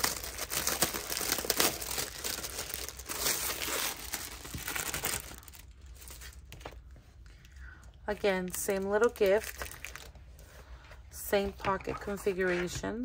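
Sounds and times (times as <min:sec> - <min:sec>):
packaging crinkling and rustling: 0:00.0 - 0:07.3, 0:08.4 - 0:10.4.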